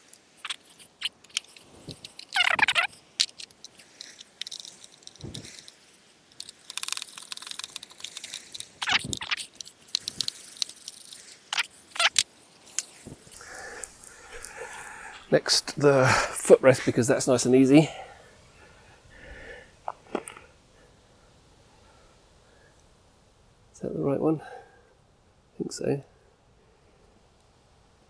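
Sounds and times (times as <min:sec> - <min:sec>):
metal parts and tools clinking: 0:00.0 - 0:13.0
sharp clicks: 0:06.4 - 0:12.9.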